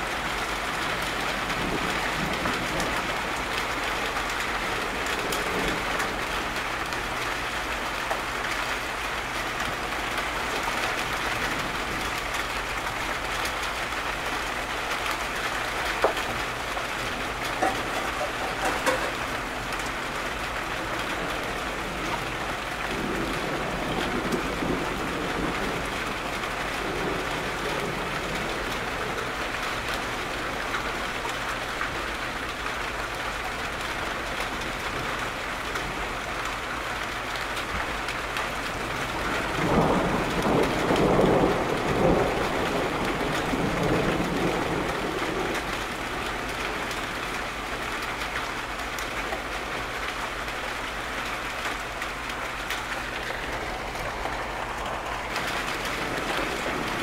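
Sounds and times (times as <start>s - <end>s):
low rumble of thunder: 0.0s - 8.2s, 8.9s - 32.6s, 37.7s - 48.3s, 49.8s - 57.0s
steady rain falling: 0.0s - 57.0s
raindrop taps: 15.0s - 20.0s.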